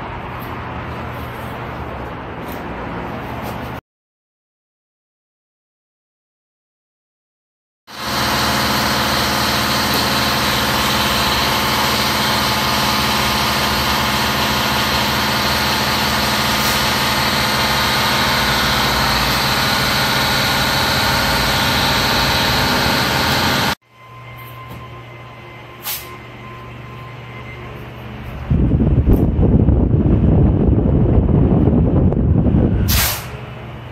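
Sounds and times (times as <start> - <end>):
machine running loudly: 7.9 - 33.9.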